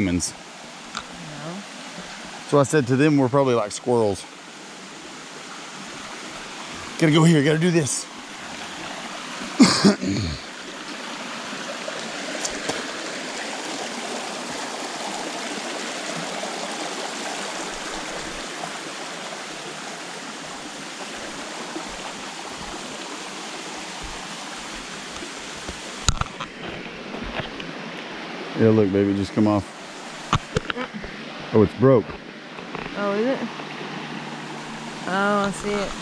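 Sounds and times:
stream running: 0:00.0 - 0:36.0.

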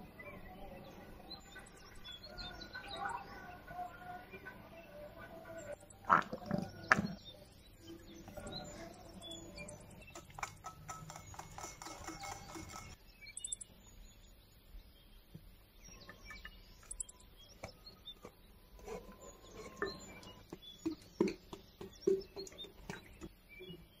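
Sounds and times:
whisk clicking against glass bowl: 0:10.0 - 0:13.6.

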